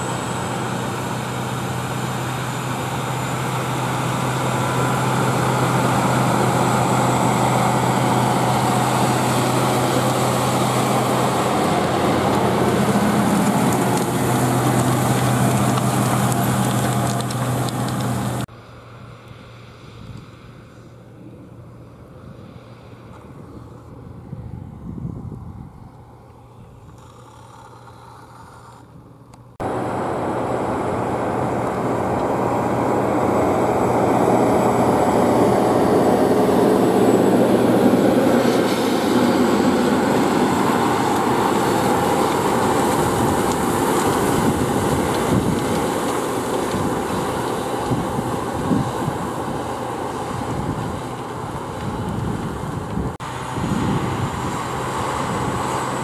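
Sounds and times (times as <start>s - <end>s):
tractor diesel engine under load: 0.0s - 24.2s, 26.0s - 56.0s
cultivator discs in soil: 0.0s - 24.4s, 25.4s - 56.0s.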